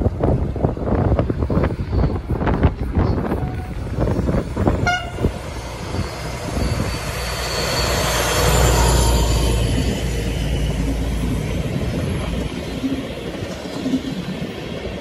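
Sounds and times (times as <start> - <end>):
diesel locomotive engine rumble: 0.0 - 15.0
train coaches rolling: 0.0 - 15.0
wind buffeting microphone: 0.0 - 15.0
faint wheel squeal: 5.6 - 10.1.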